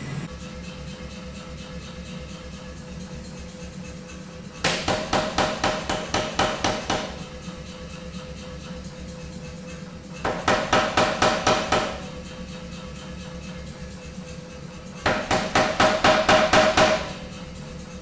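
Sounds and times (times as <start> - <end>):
machine hum: 0.0 - 18.0
power hammer striking hot metal: 4.6 - 7.4, 10.2 - 12.4, 15.0 - 17.6.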